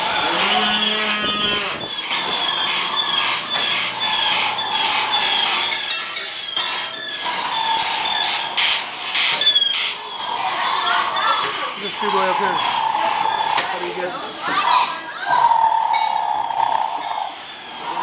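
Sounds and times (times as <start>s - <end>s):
pitched electronic effects: 8.0s - 14.2s.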